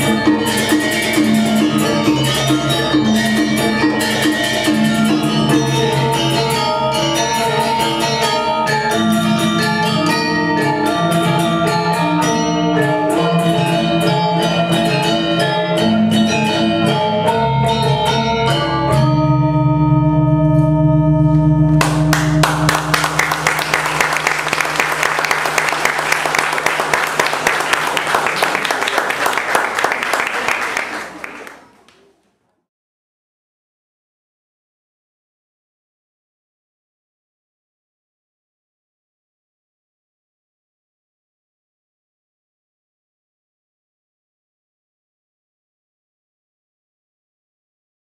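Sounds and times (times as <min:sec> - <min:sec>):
metallophones playing interlocking notes: 0:00.0 - 0:20.2
audience applause: 0:21.8 - 0:32.0.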